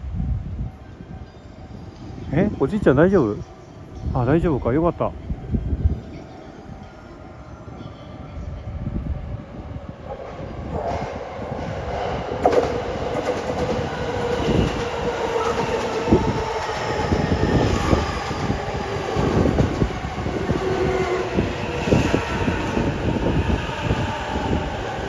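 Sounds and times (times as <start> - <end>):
electric train running past: 0.0 - 25.0.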